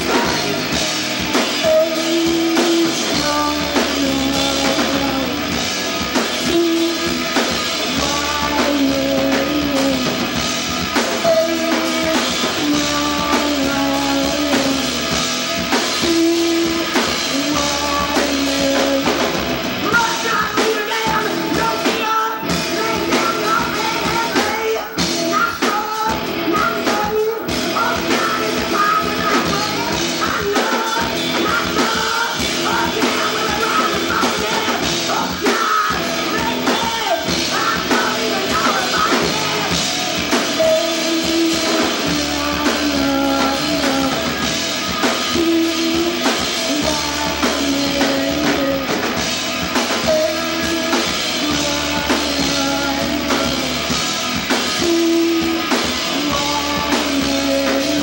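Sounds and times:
rock band playing live: 0.0 - 58.0.

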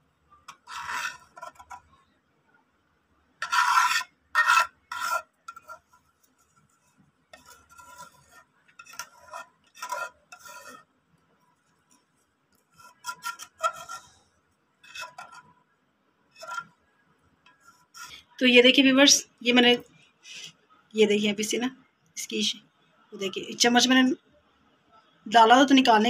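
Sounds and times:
spoon scraping a cooking pot: 0.4 - 2.0, 3.4 - 10.9, 11.6 - 15.6, 16.3 - 16.8, 17.5 - 18.4.

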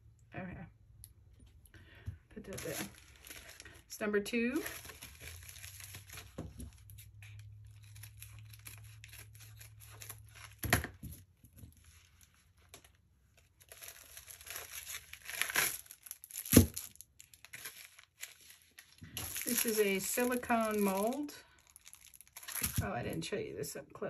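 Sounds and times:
packaging pouch crinkling: 2.5 - 3.9, 4.6 - 10.6, 11.7 - 22.8
pouch ripping open: 4.7 - 10.6, 13.6 - 22.8.

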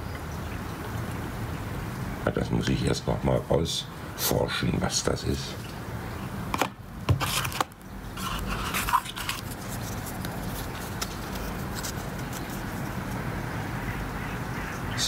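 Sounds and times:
plastic sleeve rustling: 7.2 - 13.2.

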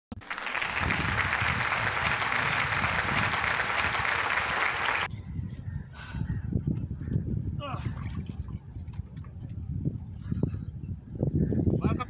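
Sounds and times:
crowd clapping: 0.1 - 5.1.

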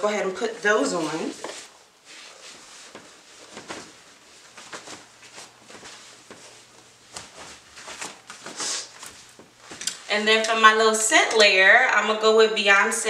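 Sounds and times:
sneakers rustling: 0.4 - 10.4.

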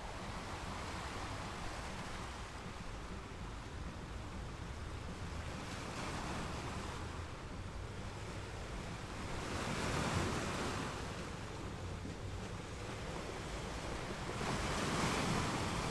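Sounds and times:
sea waves washing in: 0.0 - 15.9.

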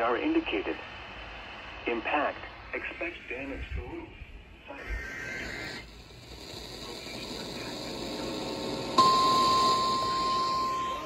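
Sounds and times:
steady hiss: 0.0 - 11.0
weather radio alarm tone: 9.0 - 11.0.

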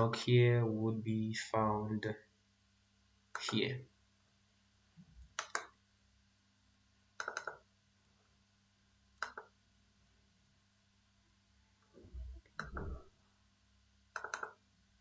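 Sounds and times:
faint low hum: 0.0 - 15.0
computer mouse clicking: 5.3 - 5.8, 7.2 - 7.6, 9.2 - 9.6, 12.4 - 13.0, 14.1 - 14.6.

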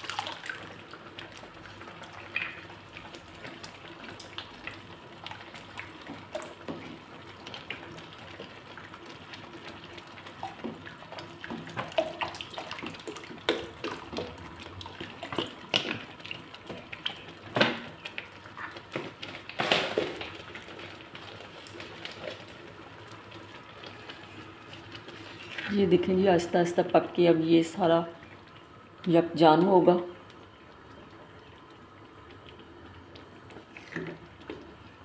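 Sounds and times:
milk pouring into a pan: 0.0 - 25.8.

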